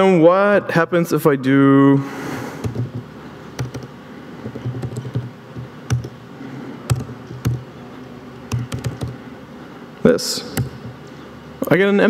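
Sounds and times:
typing on computer keyboard: 3.6 - 6.2, 6.9 - 7.6, 8.5 - 9.2.

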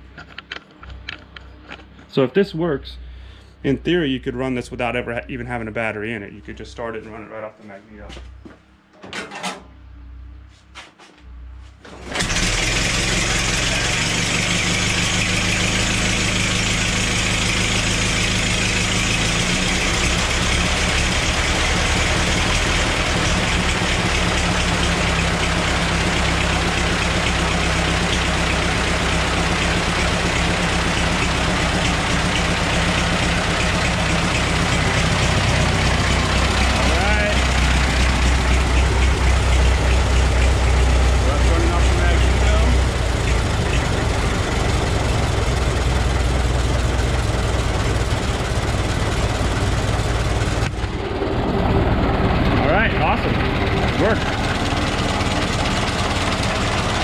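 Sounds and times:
old car engine starting and running: 11.8 - 57.0.

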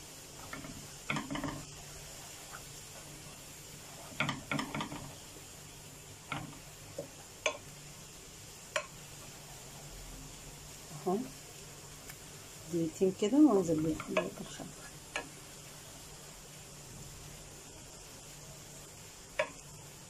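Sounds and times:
garlic sizzling in butter: 0.0 - 20.0
wooden spoon scraping frying pan: 0.3 - 5.4, 13.7 - 15.4.

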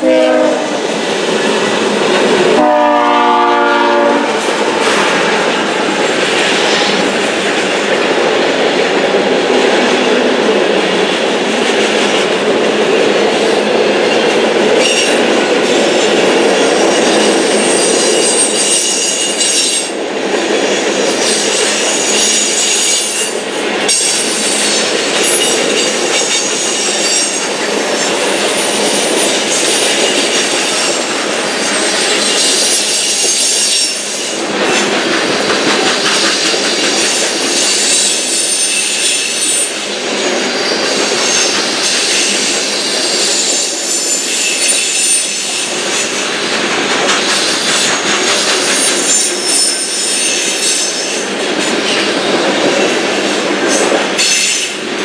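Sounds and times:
locomotive air horn blasts: 0.0 - 0.8, 2.6 - 4.4
wheels clattering on rails: 4.3 - 55.0
high wheel squeal: 20.7 - 34.9, 35.6 - 46.3, 47.4 - 51.3.

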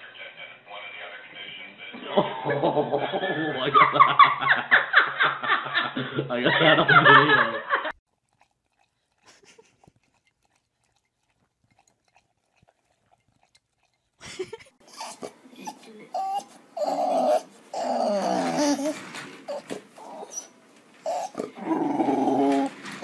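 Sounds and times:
bulldog growling: 14.9 - 23.0.

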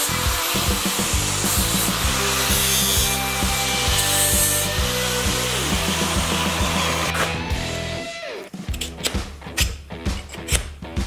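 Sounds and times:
angle grinder grinding steel: 0.0 - 7.4
background music with steady beat: 3.0 - 11.0.

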